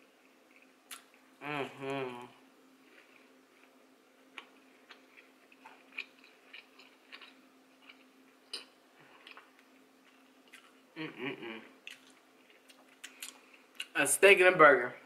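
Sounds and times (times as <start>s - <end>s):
close-up chewing: 2.9s - 10.8s.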